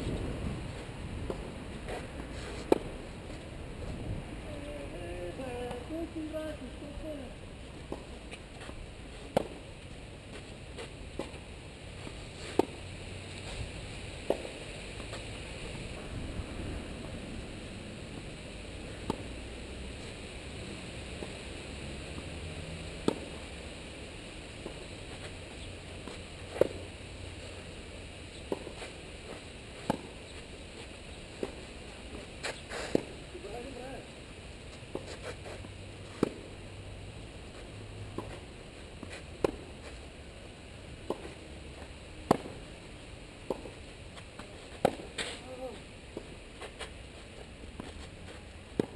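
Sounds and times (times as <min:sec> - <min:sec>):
steady hiss: 0:00.0 - 0:48.9
tennis ball struck by rackets: 0:02.6 - 0:02.9, 0:07.9 - 0:08.1, 0:09.3 - 0:09.6, 0:12.4 - 0:12.8, 0:14.2 - 0:14.6, 0:19.0 - 0:19.2, 0:23.0 - 0:23.4, 0:26.0 - 0:26.8, 0:28.5 - 0:28.8, 0:29.8 - 0:30.2, 0:31.4 - 0:31.6, 0:34.9 - 0:36.5, 0:38.1 - 0:38.4, 0:39.0 - 0:39.7, 0:41.0 - 0:41.4, 0:42.2 - 0:42.6, 0:43.4 - 0:43.8, 0:44.7 - 0:45.4
tennis racket hitting ball: 0:12.4 - 0:12.8, 0:42.2 - 0:42.6, 0:44.7 - 0:45.4.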